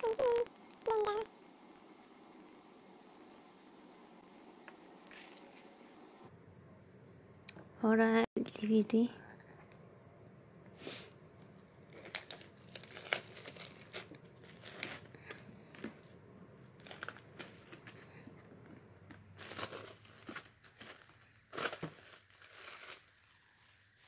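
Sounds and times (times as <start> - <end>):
plastic packaging crinkling and tearing: 11.9 - 18.3, 19.0 - 24.0.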